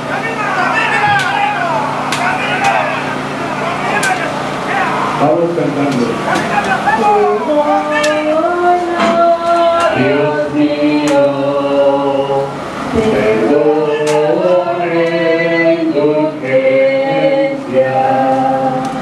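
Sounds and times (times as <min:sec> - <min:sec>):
crowd singing a hymn: 0:06.1 - 0:19.0.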